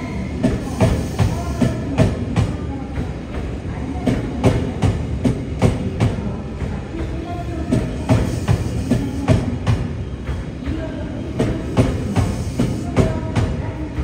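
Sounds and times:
train rolling rumble: 0.0s - 14.0s.

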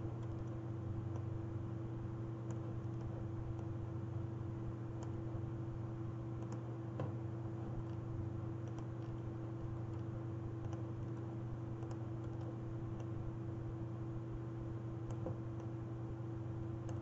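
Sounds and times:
electrical hum: 0.0s - 17.0s
computer mouse clicks: 0.1s - 1.3s, 2.4s - 3.7s, 5.0s - 5.2s, 6.4s - 8.0s, 8.6s - 13.2s, 15.0s - 15.8s, 16.8s - 17.0s.

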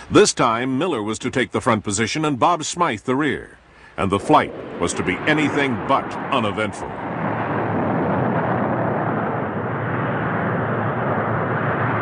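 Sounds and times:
jet engine noise: 3.8s - 12.0s.

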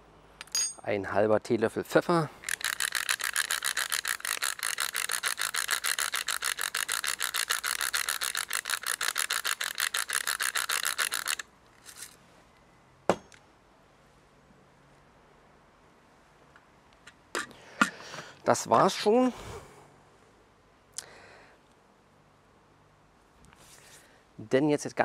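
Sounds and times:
pepper mill grinding: 2.4s - 12.1s.

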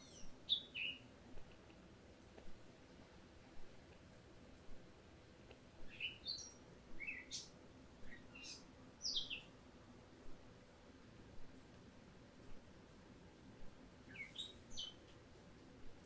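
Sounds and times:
bird chirping: 0.0s - 1.1s, 5.9s - 9.5s, 14.0s - 15.1s
faint steady hum: 0.0s - 16.0s.

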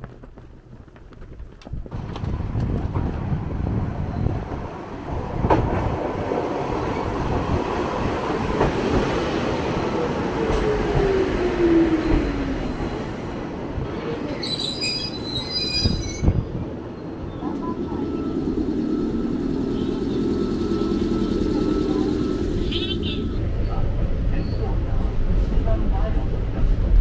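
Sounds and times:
rail clacks: 0.0s - 14.2s
electric train rumbling: 0.0s - 27.0s
wheel and brake squeal: 14.4s - 17.1s, 22.8s - 24.8s.

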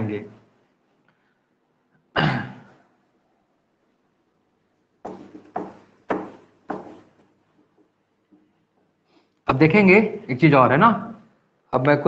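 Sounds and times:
duster wiping a whiteboard: 5.1s - 7.2s.

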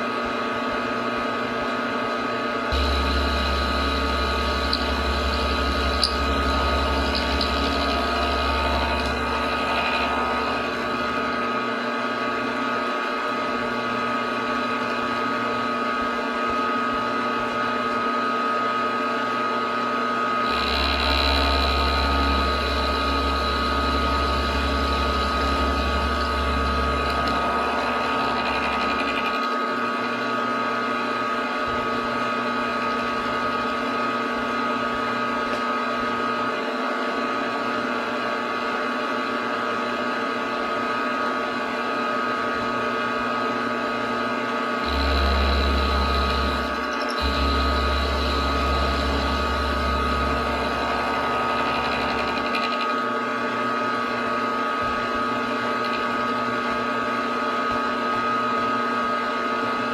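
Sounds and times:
milling machine spindle running: 2.7s - 19.4s, 20.4s - 36.3s, 44.7s - 59.9s.

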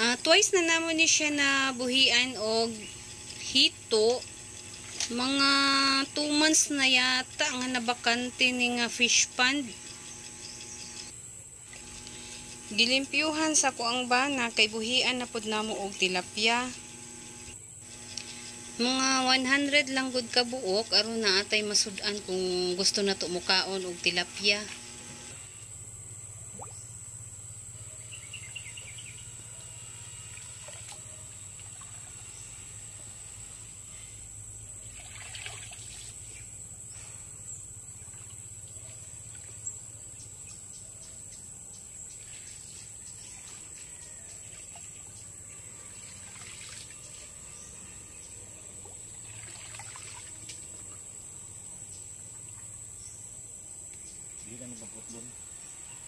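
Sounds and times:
high-pitched insect drone: 0.0s - 48.4s
water sloshing and splashing: 34.8s - 36.4s, 45.9s - 47.4s, 48.8s - 51.1s.

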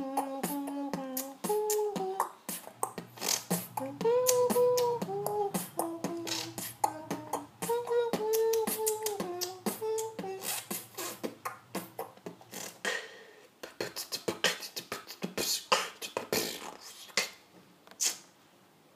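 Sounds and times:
hummed melody: 0.0s - 12.9s
man beatboxing: 0.0s - 17.4s, 18.0s - 18.2s.

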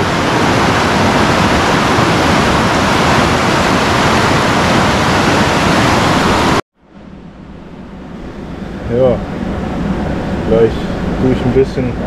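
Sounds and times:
waterfall rushing: 0.0s - 6.6s.

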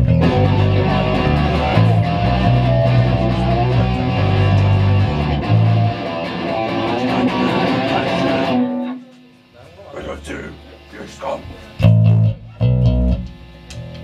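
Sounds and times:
drum kit: 0.0s - 8.6s, 11.8s - 14.0s
heavy low bass notes: 0.0s - 8.6s, 11.4s - 14.0s
electric guitars: 0.0s - 9.5s, 10.1s - 14.0s.

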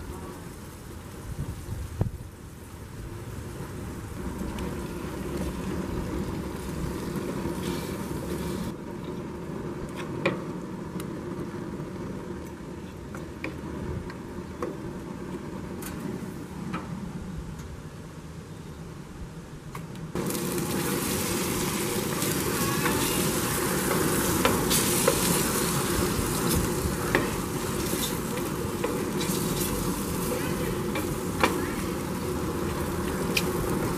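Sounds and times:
chicken sizzling in hot oil: 20.2s - 33.9s.

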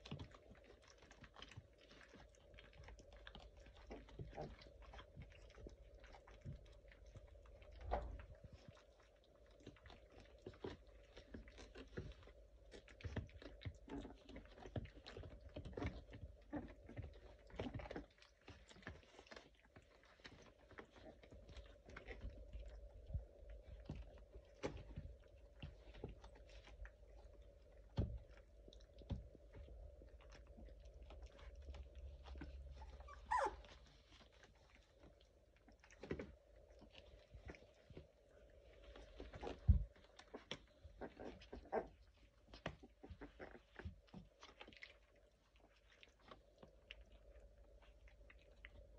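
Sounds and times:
faint steady hum: 0.0s - 48.9s
puppies scuffling and chewing: 0.0s - 48.9s
puppy whimper: 30.6s - 37.8s, 38.9s - 45.8s.

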